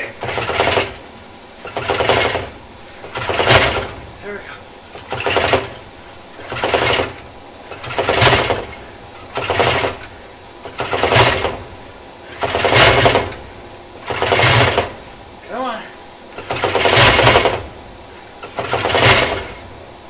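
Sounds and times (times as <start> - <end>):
engine turned over by hand: 0.0 - 1.0, 1.6 - 4.0, 4.9 - 11.7, 12.3 - 13.4, 14.0 - 15.0, 16.4 - 17.7, 18.4 - 19.6.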